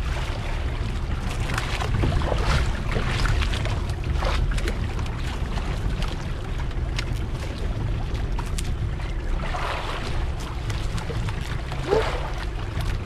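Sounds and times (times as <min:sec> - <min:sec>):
boat engine low rumble: 0:00.0 - 0:13.0
rushing wind and water: 0:00.0 - 0:13.0
wind buffeting microphone: 0:00.0 - 0:13.0.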